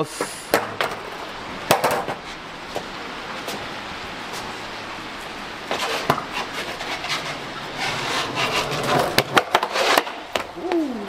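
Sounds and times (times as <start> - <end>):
skateboard wheels rolling on concrete: 0.0 - 11.0
skateboard deck clacking: 0.5 - 2.2, 5.7 - 10.5.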